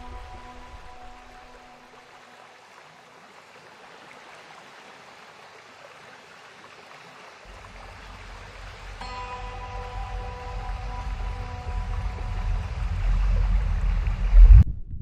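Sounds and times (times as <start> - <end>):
background music tone: 0.0 - 2.1, 7.5 - 14.6
running water hiss: 0.0 - 14.4
low rumble: 7.5 - 15.0.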